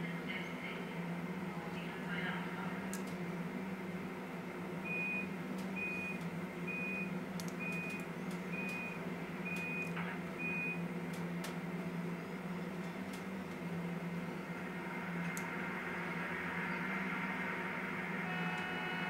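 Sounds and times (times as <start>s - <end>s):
low hum: 0.0s - 19.0s
short electronic beeps: 4.9s - 10.8s.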